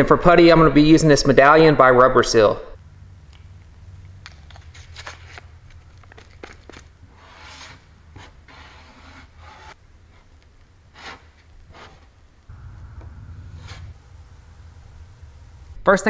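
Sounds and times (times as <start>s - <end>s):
low steady hum: 2.7s - 8.5s, 12.2s - 16.0s.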